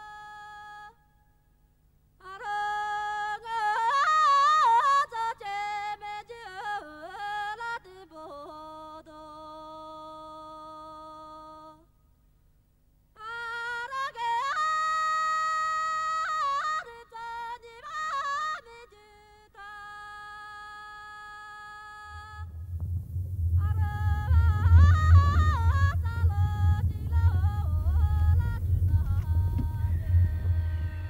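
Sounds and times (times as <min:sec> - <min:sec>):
person singing unaccompanied: 0:23.6 - 0:31.0.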